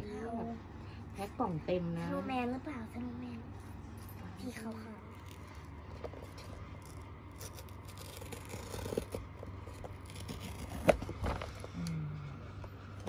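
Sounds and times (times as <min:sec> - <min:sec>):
fingers scratching cardboard box: 0:06.2 - 0:11.6.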